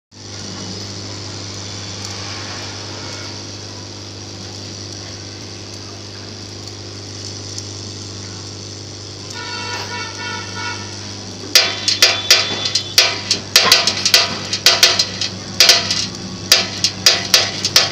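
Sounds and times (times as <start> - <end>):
vibratory feeder humming: 0.1 - 17.9
steel balls rattling: 11.5 - 17.9.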